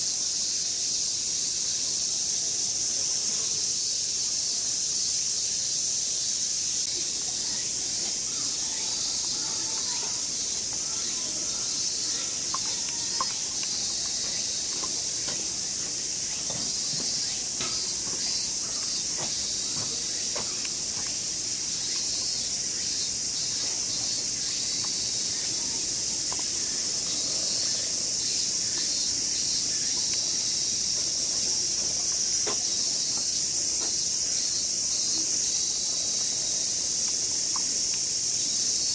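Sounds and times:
cicadas chorus: 0:00.0 - 0:38.9
faint clicks: 0:09.1 - 0:15.5, 0:36.0 - 0:38.4.

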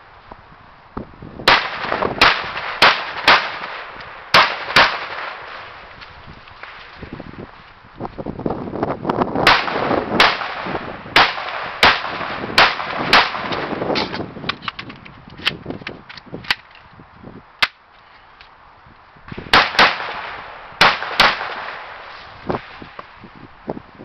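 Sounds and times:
rifle shots with echo: 0:01.5 - 0:05.8, 0:09.4 - 0:14.1, 0:19.5 - 0:22.1.

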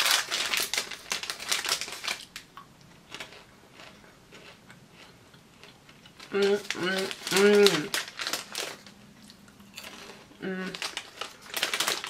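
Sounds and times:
popcorn packet crinkling: 0:00.0 - 0:12.0.

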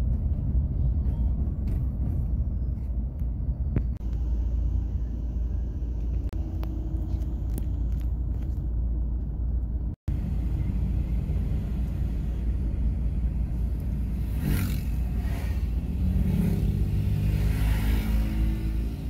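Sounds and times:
road and engine rumble in car: 0:00.0 - 0:19.0
vehicle whooshing past: 0:14.0 - 0:19.0.

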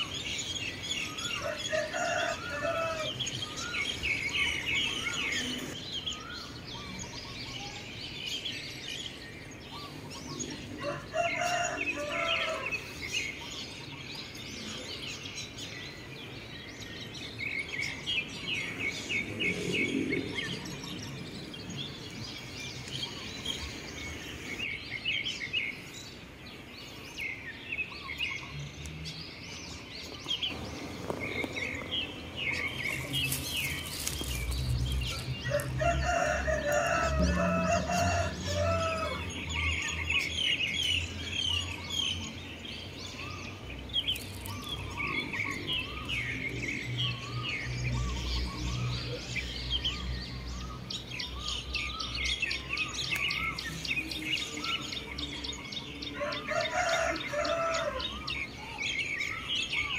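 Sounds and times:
small birds chirping: 0:00.0 - 0:59.9
rooster crowing: 0:01.3 - 0:05.7, 0:10.8 - 0:12.8, 0:35.0 - 0:39.9, 0:56.1 - 0:58.4.

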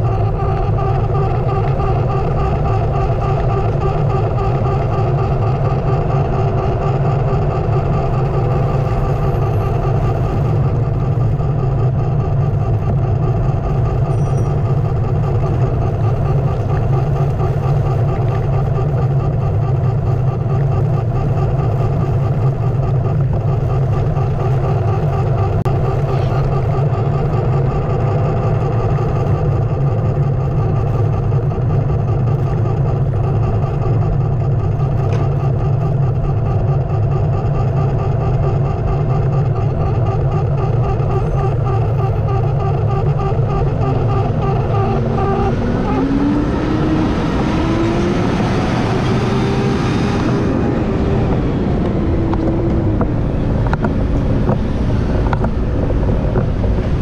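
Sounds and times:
electric skateboard motor humming: 0:00.0 - 0:57.0.

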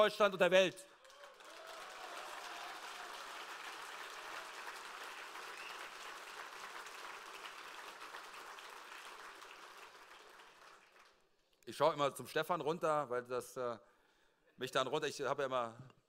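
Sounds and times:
audience applauding: 0:01.0 - 0:11.2.

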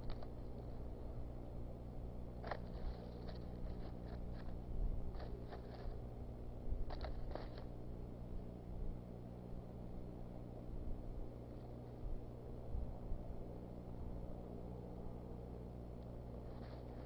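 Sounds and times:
steady low hum: 0:00.0 - 0:17.0
sticks and snow crunching: 0:02.4 - 0:06.0.

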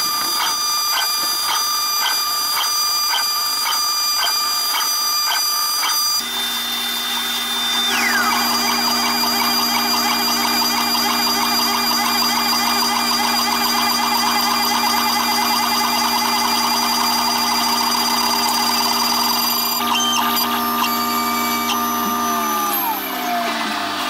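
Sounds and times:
router spindle whine: 0:00.0 - 0:24.0
rapid warbling cutting noise: 0:07.2 - 0:17.1, 0:18.0 - 0:23.4.

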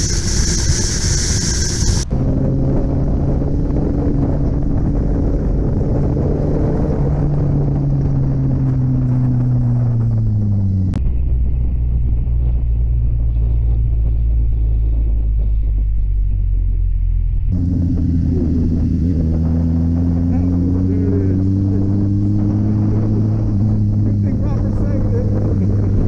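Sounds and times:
wind rush: 0:00.0 - 0:16.8, 0:17.5 - 0:26.0
motorcycle engine running: 0:00.0 - 0:26.0.

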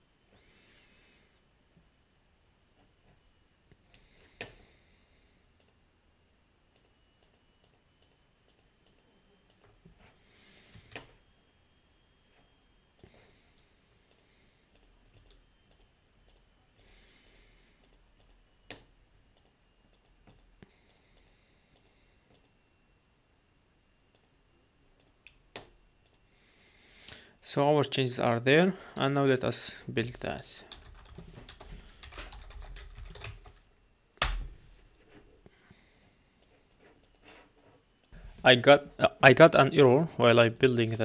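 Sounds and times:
computer mouse clicks: 0:05.6 - 0:05.8, 0:06.8 - 0:09.8, 0:10.5 - 0:11.1, 0:14.1 - 0:18.8, 0:19.4 - 0:22.6, 0:24.1 - 0:24.4, 0:25.0 - 0:26.2, 0:36.4 - 0:37.3.

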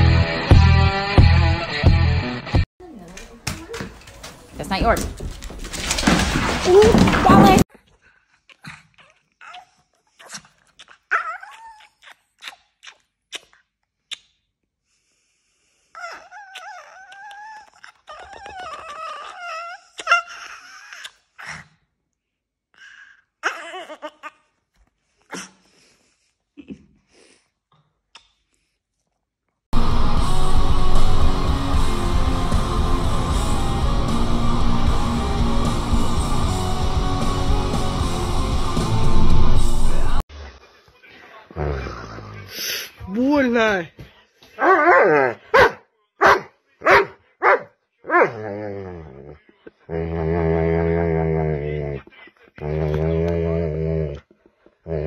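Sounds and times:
small dog whining: 0:08.6 - 0:12.2, 0:16.0 - 0:21.1
loud background music: 0:29.8 - 0:40.2.

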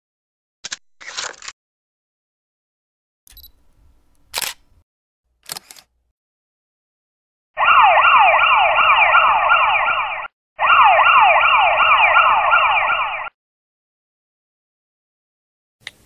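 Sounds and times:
siren-like falling whoops: 0:07.6 - 0:13.3.

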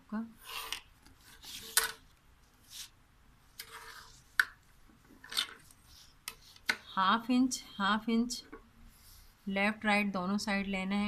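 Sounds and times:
paper rustling and scraping: 0:00.4 - 0:02.9, 0:03.6 - 0:04.3.

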